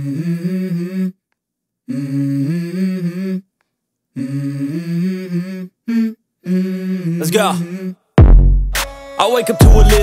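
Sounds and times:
low voice humming a melody: 0:00.0 - 0:01.2, 0:01.9 - 0:03.5, 0:04.2 - 0:08.0.

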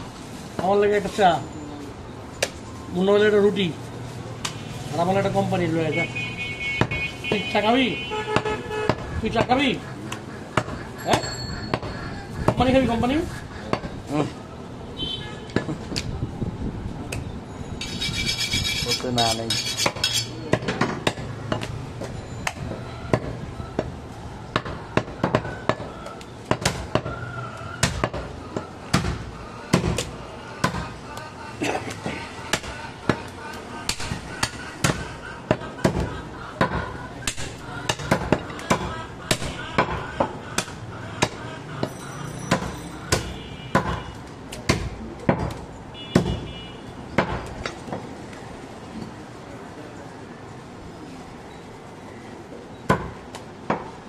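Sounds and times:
cleaver chopping meat on wood: 0:19.8 - 0:27.2, 0:27.8 - 0:30.8, 0:33.9 - 0:41.9, 0:42.5 - 0:46.4.

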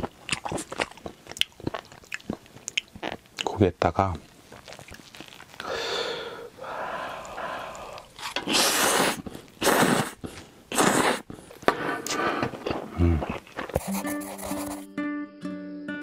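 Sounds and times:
person slurping noodles: 0:04.6 - 0:14.8.

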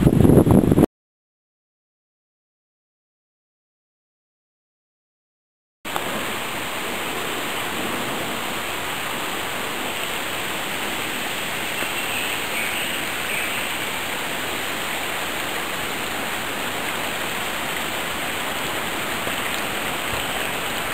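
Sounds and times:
stream running over stones: 0:05.9 - 0:20.9.

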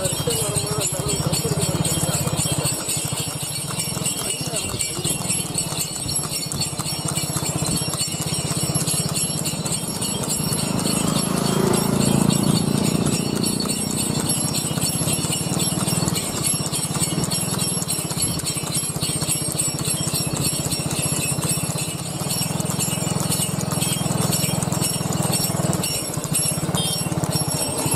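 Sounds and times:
harness bells jingling: 0:00.0 - 0:27.9
horse hooves clip-clopping on road: 0:00.0 - 0:27.9.

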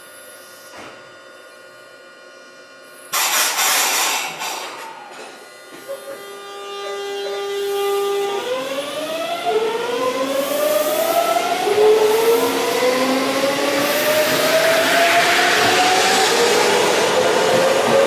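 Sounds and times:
train electrical tone: 0:04.6 - 0:13.4
traction motor whine rising: 0:04.7 - 0:18.0.

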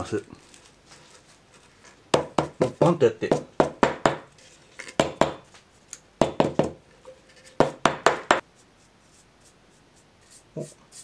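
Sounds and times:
sharp knocks on a panel: 0:02.1 - 0:04.3, 0:05.0 - 0:05.4, 0:06.2 - 0:06.8, 0:07.6 - 0:08.4.

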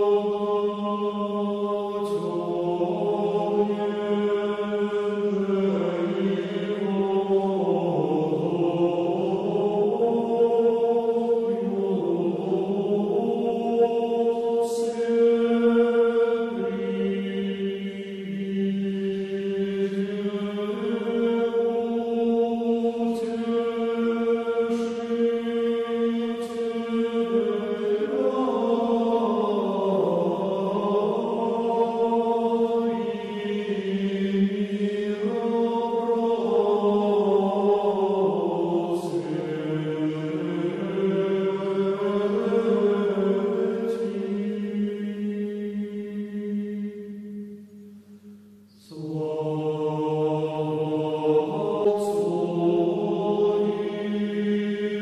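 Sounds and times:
slow vocal chanting: 0:00.0 - 0:55.0.

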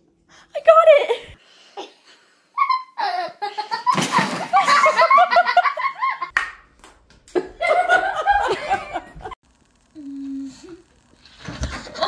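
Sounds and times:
people laughing: 0:03.0 - 0:06.3, 0:07.4 - 0:09.4.

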